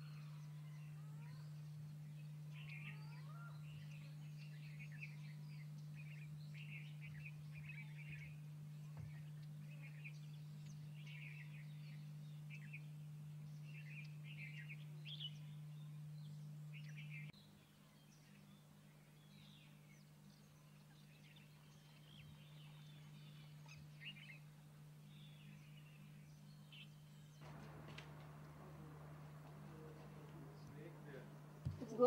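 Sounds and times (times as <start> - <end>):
small birds chirping: 0.0 - 32.0
steady low hum: 18.3 - 32.0
faint rising whistles: 27.4 - 32.0.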